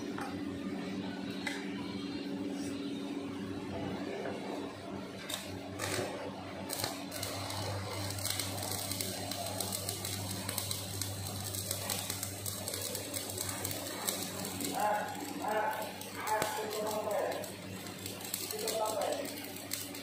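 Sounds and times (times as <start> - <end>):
crackling welding sizzle: 5.2 - 20.0
welding arc strikes: 5.2 - 20.0.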